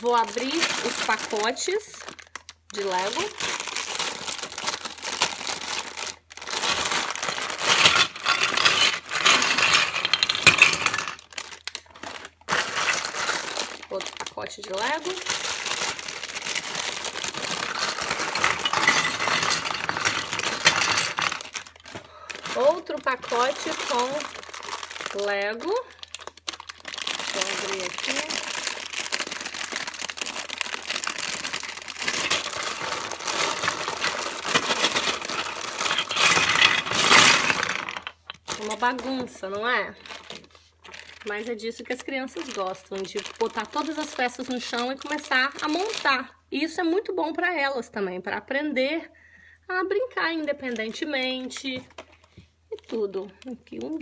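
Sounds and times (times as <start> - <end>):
plastic bag crinkling: 0.0 - 46.3, 50.4 - 54.0
toy bricks clattering on wooden floor: 6.6 - 14.3, 14.9 - 25.3, 31.3 - 39.4.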